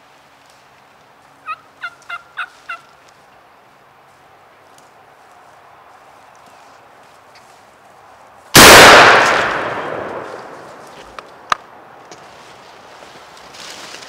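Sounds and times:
shotgun blast: 0:08.6 - 0:10.8.

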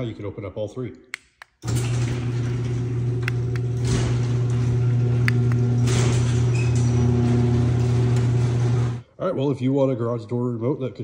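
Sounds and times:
sharp clicks: 0:01.1 - 0:01.6
garage door opener motor hum: 0:01.6 - 0:09.0.

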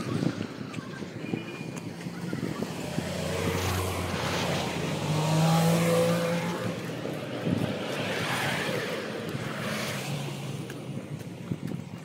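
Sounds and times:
vehicle passing by: 0:02.3 - 0:10.8.

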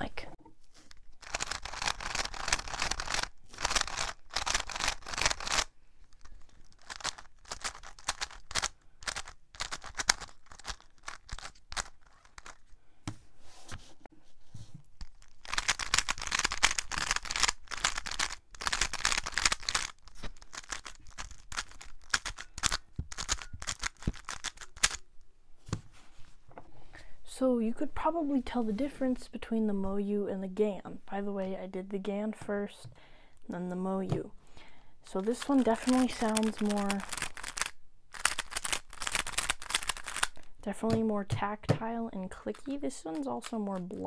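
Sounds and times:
puzzle cube plastic clicking: 0:00.9 - 0:12.6, 0:15.0 - 0:25.0, 0:35.2 - 0:40.5.

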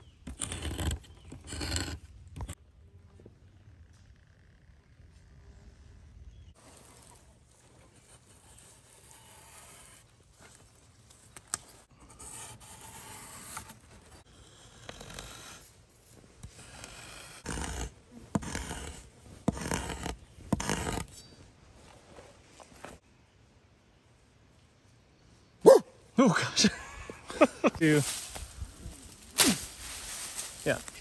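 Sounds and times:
rustling in leaf litter: 0:27.8 - 0:31.0.

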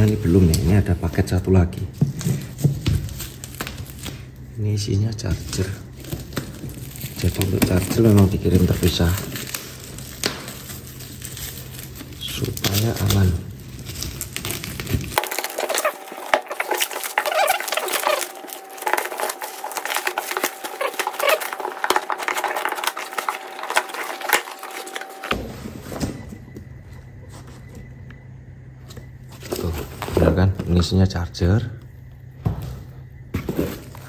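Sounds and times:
plastic wrap crackling and tearing: 0:00.0 - 0:25.4
cardboard box handling: 0:14.6 - 0:25.5.

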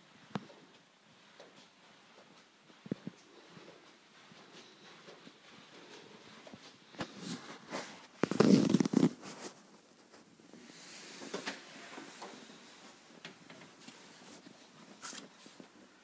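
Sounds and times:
rustling and rubbing on phone: 0:05.8 - 0:16.0.

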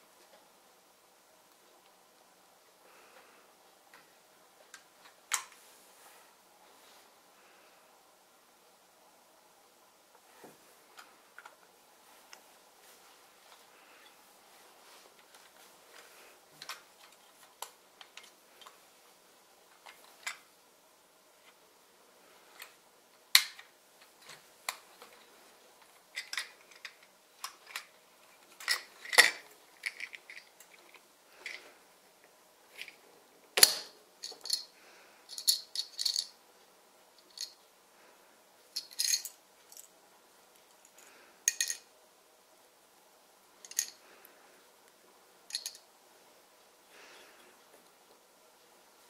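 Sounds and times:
plastic bricks clicking and clattering: 0:26.1 - 0:31.6, 0:41.5 - 0:41.8.

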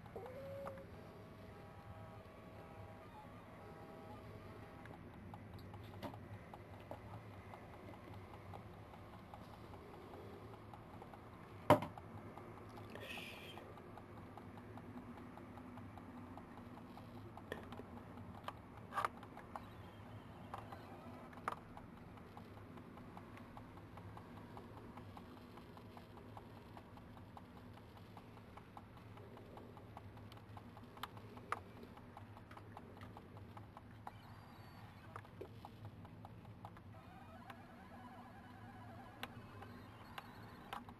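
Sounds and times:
low steady hum: 0:00.0 - 0:40.9.

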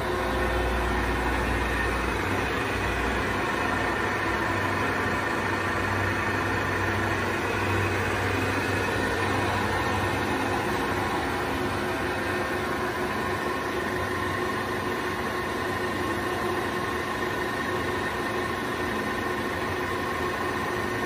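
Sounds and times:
lathe spindle whirring: 0:00.0 - 0:21.0.

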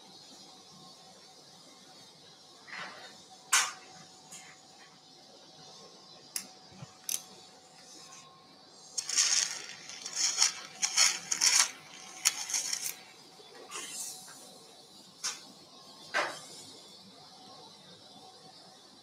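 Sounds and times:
instruments clinking and scraping: 0:09.0 - 0:13.1.

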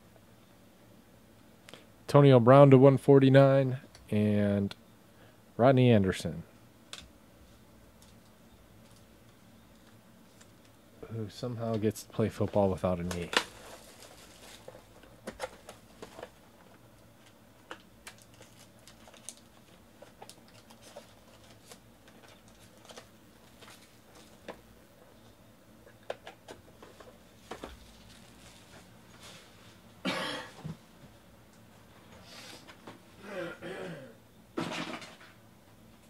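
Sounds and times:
foil packs crinkling: 0:12.3 - 0:24.5, 0:27.4 - 0:29.0.

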